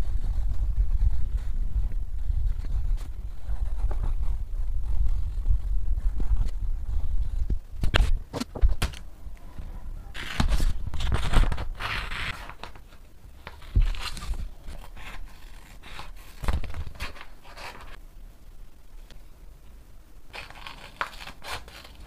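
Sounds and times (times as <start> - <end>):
paper rustling: 10.1 - 18.0, 20.3 - 22.0
scissors snipping paper: 20.4 - 22.0.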